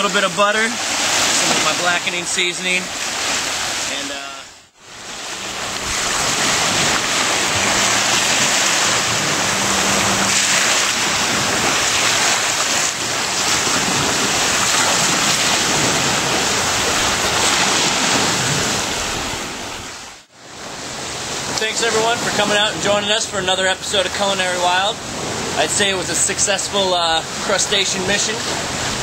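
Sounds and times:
surf rushing: 0.0 - 29.0.

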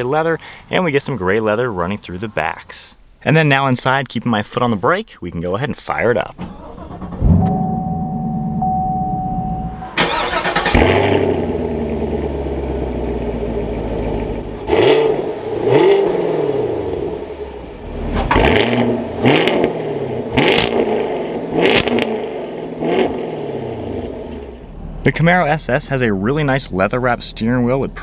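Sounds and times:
car engine starting and revving: 6.4 - 28.0.

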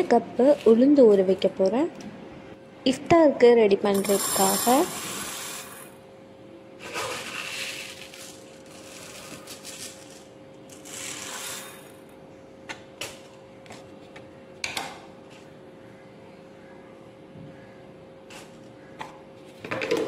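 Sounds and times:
grainy rustling and rattling: 6.9 - 11.9.

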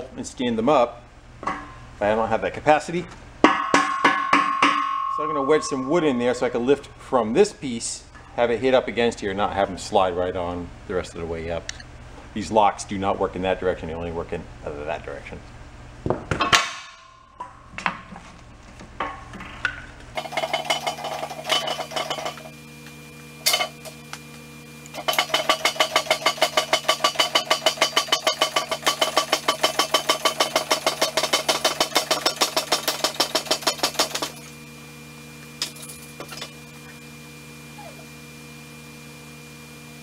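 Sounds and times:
steady electrical hum: 0.0 - 31.0.

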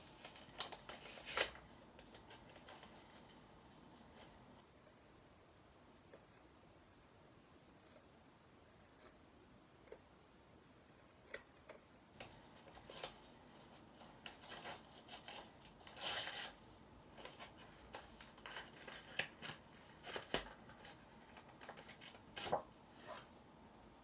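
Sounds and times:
packaging crinkling: 0.0 - 4.5, 17.2 - 22.7
paper tearing: 14.4 - 16.6.

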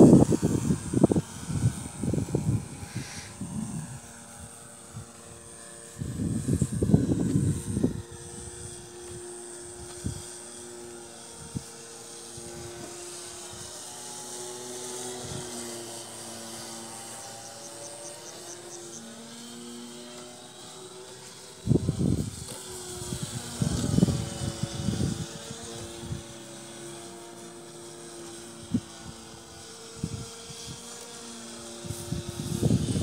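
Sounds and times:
wind buffeting microphone: 0.0 - 10.4, 21.6 - 26.3, 31.8 - 33.0
model airplane motor whine: 0.0 - 33.0.

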